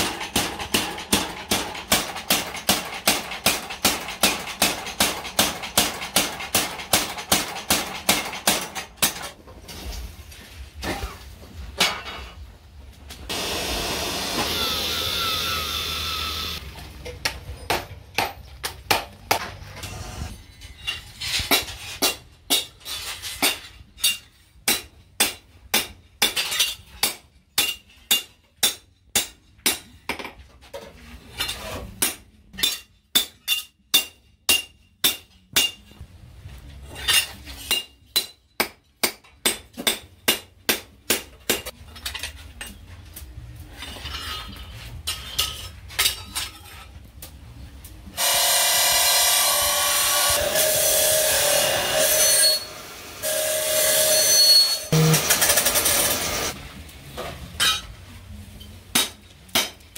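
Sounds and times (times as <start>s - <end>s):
hammer striking steel on anvil: 17.2s - 19.6s, 21.5s - 22.8s, 23.4s - 30.3s, 31.9s - 36.0s, 37.1s - 41.8s, 58.9s - 59.9s.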